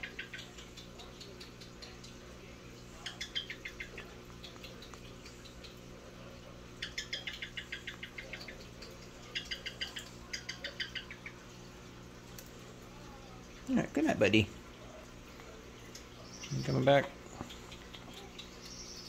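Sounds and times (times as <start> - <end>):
parrot rapid clicks: 0.0 - 2.3, 3.0 - 5.9, 6.8 - 11.2, 17.4 - 18.8
low steady hum: 0.0 - 19.0.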